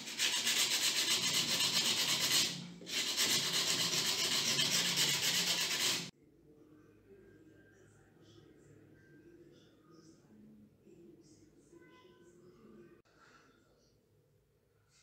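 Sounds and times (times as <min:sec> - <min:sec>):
sandpaper scratching on metal: 0:00.0 - 0:06.1.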